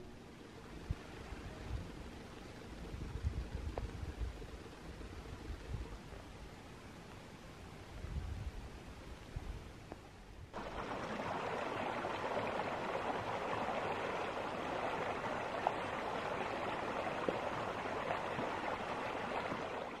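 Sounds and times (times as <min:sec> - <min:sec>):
creek water rushing: 0:10.6 - 0:20.0.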